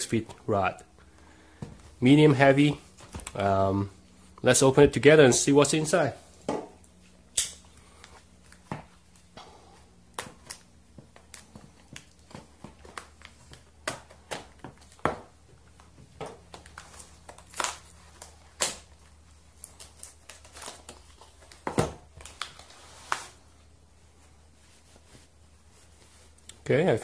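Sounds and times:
cardboard and tape snapping: 16.5s - 23.4s.

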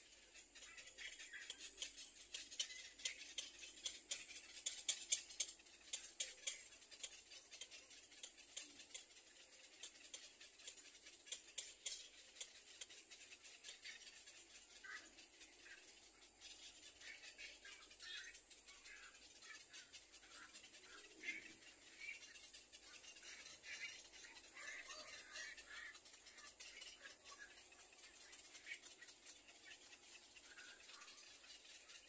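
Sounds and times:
dry clicking of birds: 0.0s - 32.0s.

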